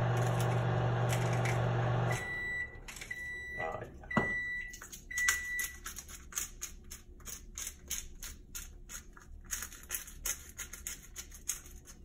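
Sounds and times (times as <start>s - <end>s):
seasoning grinder crunching: 0.0s - 2.1s, 5.6s - 12.0s.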